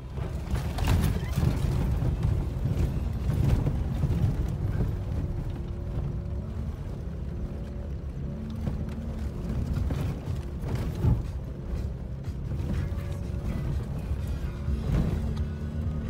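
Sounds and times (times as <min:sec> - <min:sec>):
faint steady engine tone: 0:00.0 - 0:16.0
knocks and rattles from bumpy ground: 0:00.0 - 0:16.0
vehicle engine rumble: 0:00.0 - 0:16.0.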